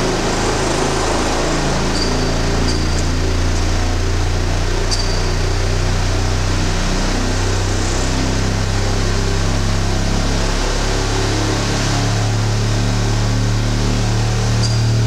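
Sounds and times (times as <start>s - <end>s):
vibration shaker humming: 0.0s - 6.4s.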